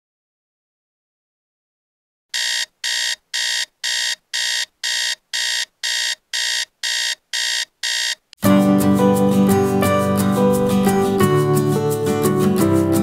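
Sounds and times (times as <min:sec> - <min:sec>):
alarm clock beeping: 0:02.4 - 0:08.2
guitar music: 0:08.4 - 0:13.0.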